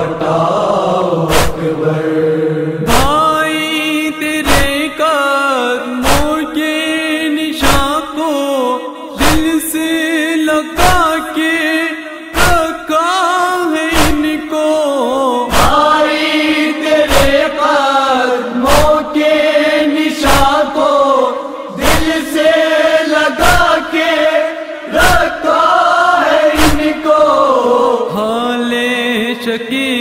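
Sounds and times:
men chanting: 0.0 - 30.0
chest-beating thumps: 1.3 - 1.7, 2.8 - 3.3, 4.4 - 4.9, 6.0 - 6.4, 7.6 - 8.0, 13.9 - 14.4, 15.5 - 15.8, 17.0 - 17.6, 20.2 - 20.8, 21.8 - 22.4, 26.6 - 27.1.

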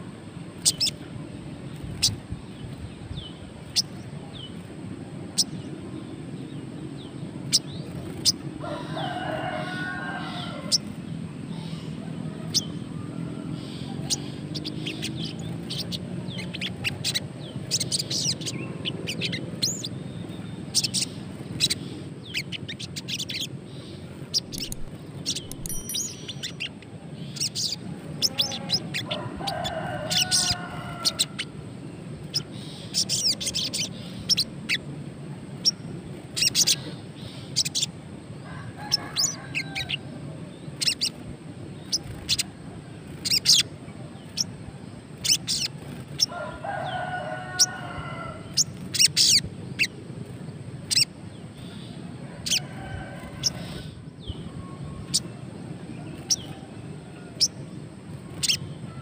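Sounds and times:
rooster crowing: 8.5 - 11.0, 28.2 - 31.6, 38.4 - 40.4, 46.2 - 48.9, 52.2 - 55.0
bird chip calls: 11.5 - 31.6, 36.4 - 37.9, 40.7 - 41.2, 41.8 - 44.6, 45.2 - 50.0, 50.9 - 52.6.

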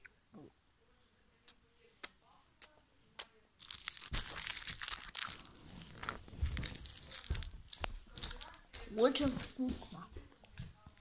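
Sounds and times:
wrapper crinkling: 3.6 - 9.6.

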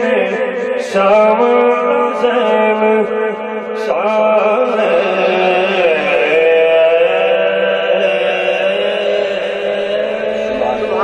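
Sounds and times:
man singing into microphone: 0.0 - 11.0
steady low drone: 4.0 - 11.0.

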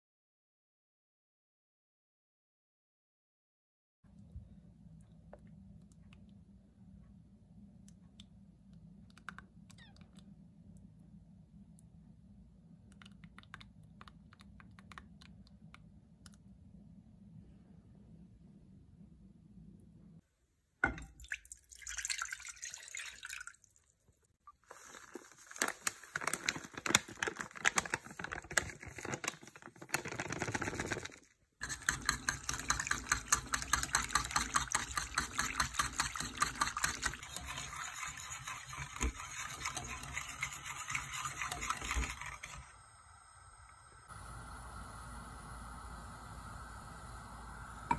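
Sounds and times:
liquid sloshing: 31.6 - 42.6
wire whisk clinking in metal pot: 31.6 - 42.6.

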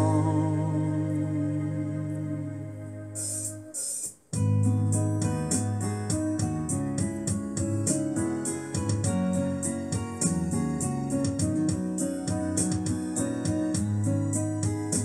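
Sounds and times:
keyboard chords and melody: 0.0 - 15.0
steady beat: 3.2 - 15.0.

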